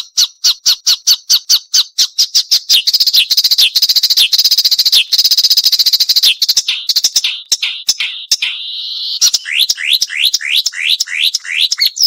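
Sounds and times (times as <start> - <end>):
warbler singing: 2.3 - 12.0.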